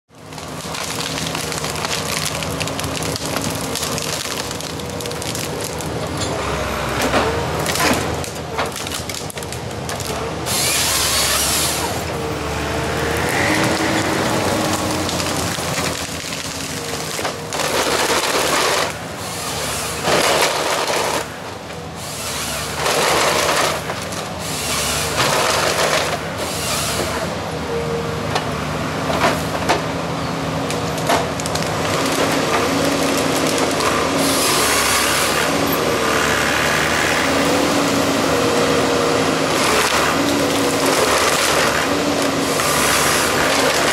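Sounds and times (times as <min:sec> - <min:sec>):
diesel engine running: 0:00.1 - 0:43.9
wood cracking and scraping: 0:00.2 - 0:27.3, 0:30.6 - 0:43.9
sawing: 0:10.0 - 0:27.4, 0:31.6 - 0:43.9.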